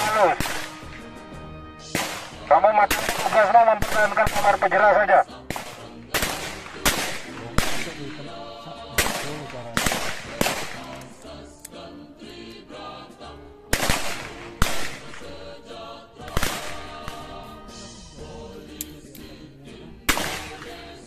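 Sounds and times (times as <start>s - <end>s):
music with choir singing: 0.0s - 21.0s
handgun shots: 0.4s - 0.9s, 1.9s - 4.4s, 5.5s - 8.0s, 9.0s - 11.0s, 13.8s - 15.3s, 20.1s - 20.7s.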